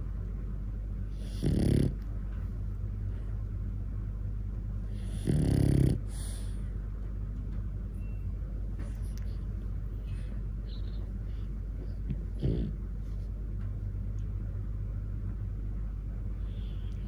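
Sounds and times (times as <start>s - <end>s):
dog snoring: 1.1s - 2.0s, 4.9s - 6.6s, 12.1s - 12.8s.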